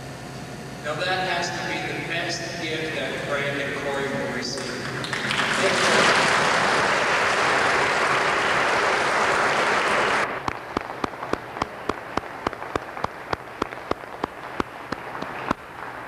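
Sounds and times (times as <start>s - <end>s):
crowd applauding: 4.9s - 16.0s
single sharp claps: 7.3s - 16.0s.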